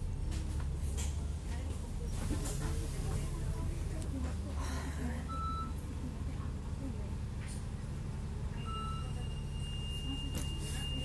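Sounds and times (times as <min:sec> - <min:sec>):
bus engine rumbling: 0:00.0 - 0:11.0
short beep: 0:08.6 - 0:11.0.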